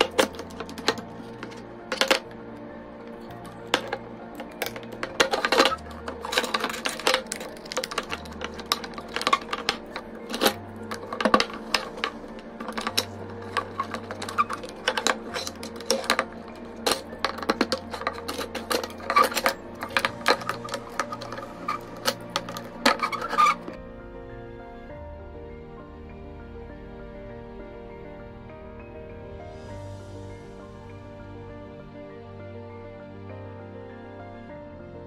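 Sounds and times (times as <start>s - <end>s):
plastic parts clicking together: 0.0s - 2.4s, 3.1s - 23.8s
soft background music: 0.0s - 35.0s.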